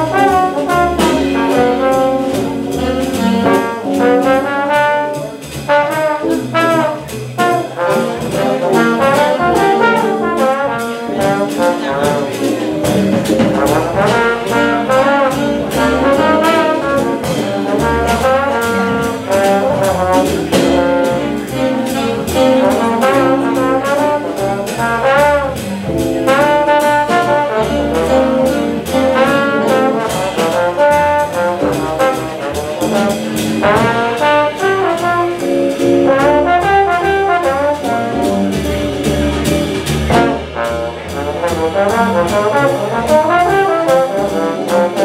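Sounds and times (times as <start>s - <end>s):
bass: 0.0s - 45.0s
brass section: 0.0s - 45.0s
drums keeping steady beat: 0.0s - 45.0s
piano: 0.0s - 45.0s.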